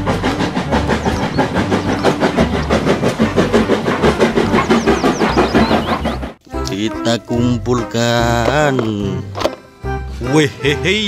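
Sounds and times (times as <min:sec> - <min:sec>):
steam locomotive chuffing: 0:00.0 - 0:06.4
wheels clattering on rail: 0:00.0 - 0:06.4.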